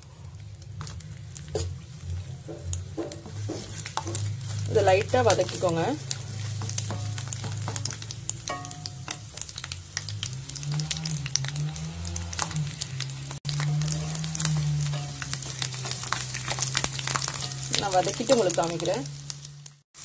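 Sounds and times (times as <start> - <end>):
garlic sizzling in hot oil: 0.0 - 20.0
wooden spatula stirring: 0.6 - 18.9.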